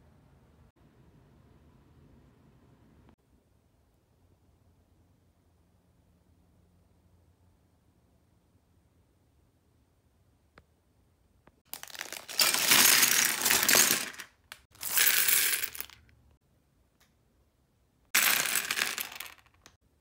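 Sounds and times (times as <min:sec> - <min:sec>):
plastic bricks clattering: 0:11.7 - 0:16.1, 0:18.2 - 0:19.8.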